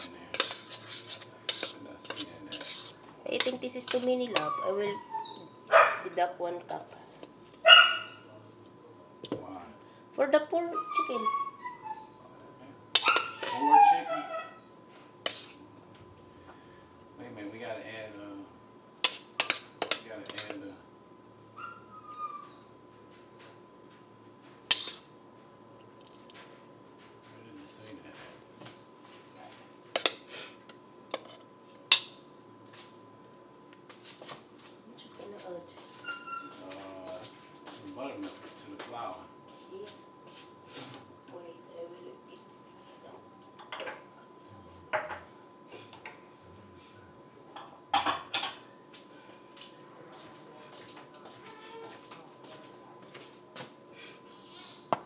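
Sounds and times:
metal spoon scraping plastic cup: 0:00.0 - 0:04.5, 0:24.7 - 0:25.0
utensils and dishes clattering: 0:00.0 - 0:04.6, 0:13.0 - 0:14.0, 0:19.0 - 0:20.7, 0:24.7 - 0:25.1, 0:27.3 - 0:30.3, 0:47.6 - 0:48.7
faint high chirping: 0:07.7 - 0:09.2.

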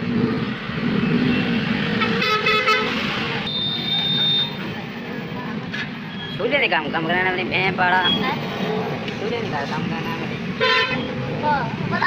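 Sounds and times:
vehicle horn honking: 0:02.0 - 0:04.6, 0:10.6 - 0:11.1.

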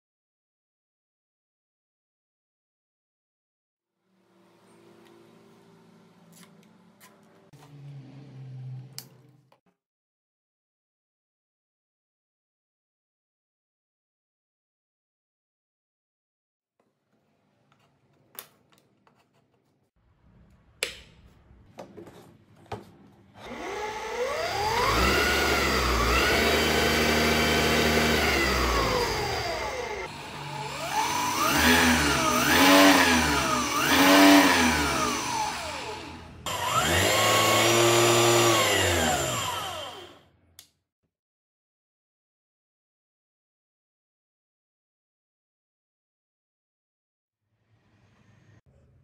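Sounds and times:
electric motor whine: 0:23.4 - 0:40.3.

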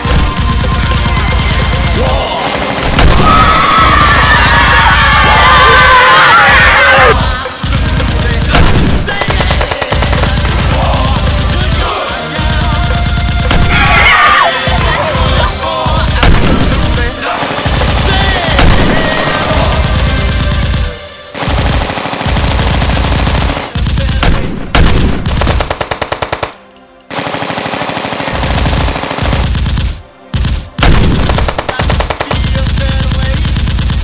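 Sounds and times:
machine-gun fire: 0:00.0 - 0:05.8, 0:06.9 - 0:34.0
background music: 0:00.0 - 0:33.6.

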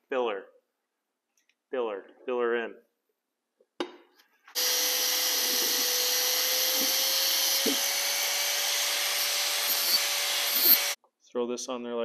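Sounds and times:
angle grinder grinding steel: 0:04.6 - 0:11.0.

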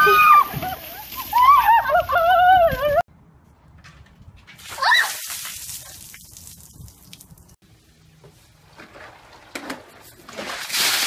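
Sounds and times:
water splashing and dripping: 0:04.5 - 0:07.6, 0:08.8 - 0:11.0.

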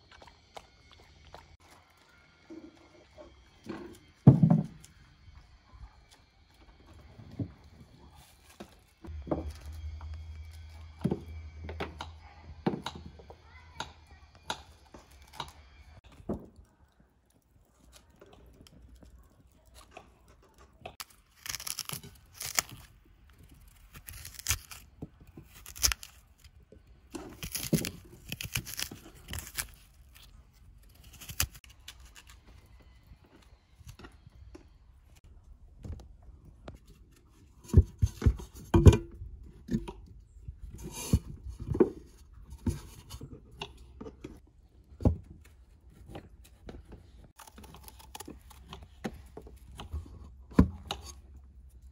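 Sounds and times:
knife scraping and tearing fruit: 0:17.8 - 0:33.0, 0:39.7 - 0:44.4, 0:45.0 - 0:51.9.

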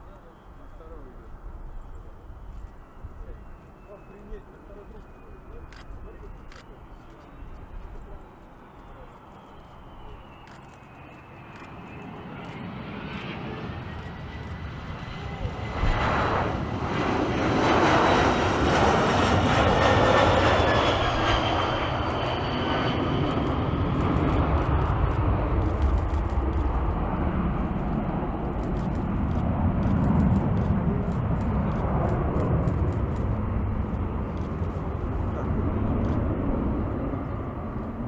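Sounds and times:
jet airliner roar and whine: 0:00.0 - 0:38.0.

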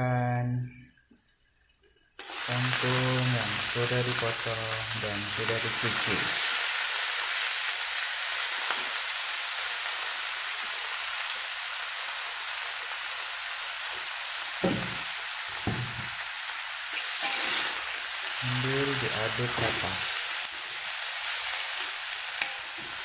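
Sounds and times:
vegetables sizzling in a wok: 0:02.2 - 0:23.0
low knocks: 0:14.6 - 0:15.1, 0:15.7 - 0:16.2.

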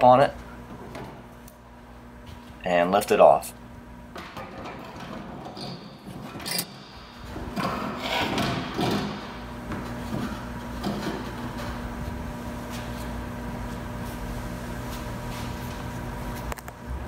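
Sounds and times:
panel scraping and rubbing: 0:07.5 - 0:09.4.

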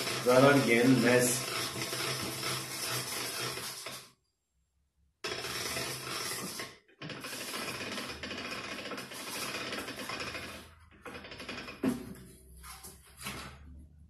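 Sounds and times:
winding machine gears rattling: 0:00.0 - 0:04.1, 0:05.2 - 0:12.0.

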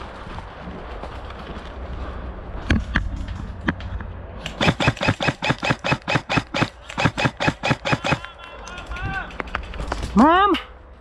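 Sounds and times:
airsoft gun firing: 0:04.4 - 0:08.2.

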